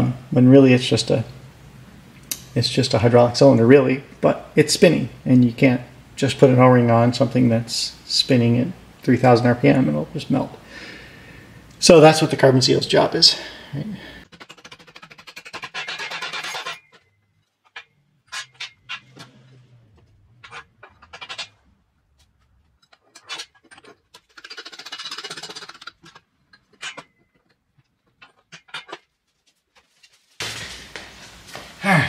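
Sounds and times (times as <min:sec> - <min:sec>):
steel parts knocking and clinking: 0:14.3 - 0:29.1.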